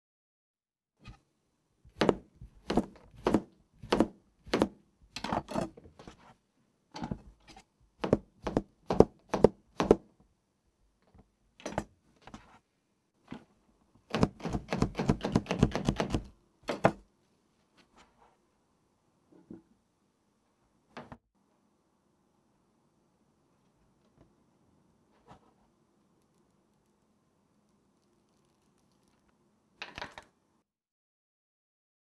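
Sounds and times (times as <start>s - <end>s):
knife chopping on screen: 1.9s - 6.3s, 7.0s - 10.1s, 14.1s - 17.1s.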